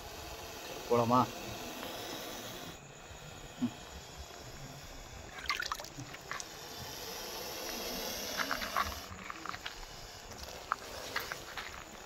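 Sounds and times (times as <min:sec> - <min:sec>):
faint steady hiss: 0:00.0 - 0:12.0
crunches on loose gravel: 0:08.4 - 0:12.0.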